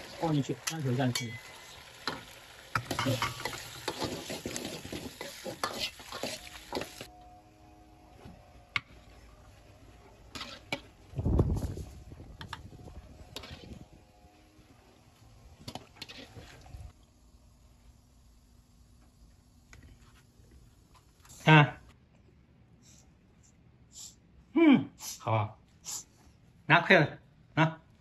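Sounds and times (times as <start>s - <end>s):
shrimp sizzling in a wok: 0.0s - 7.1s
metal ladle scraping a pan: 2.8s - 7.1s, 10.2s - 11.0s, 13.3s - 13.8s, 15.7s - 16.7s.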